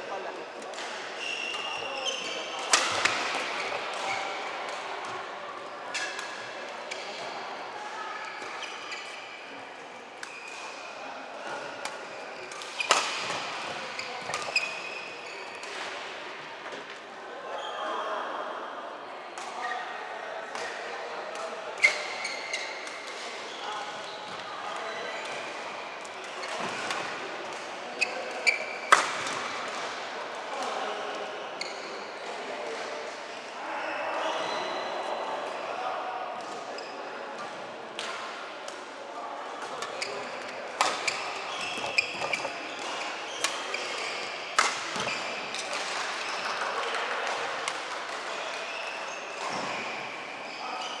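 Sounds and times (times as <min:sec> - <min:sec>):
sports hall background noise: 0:00.0 - 0:51.0
court shoes squeaking: 0:00.1 - 0:05.2, 0:05.9 - 0:07.2, 0:08.3 - 0:09.4, 0:10.2 - 0:10.8, 0:11.4 - 0:16.0, 0:21.8 - 0:25.6, 0:26.2 - 0:29.8, 0:31.6 - 0:32.0, 0:36.7 - 0:37.1, 0:39.6 - 0:47.2, 0:48.4 - 0:51.0
racket hitting shuttlecock: 0:02.6 - 0:04.8, 0:11.8 - 0:13.5.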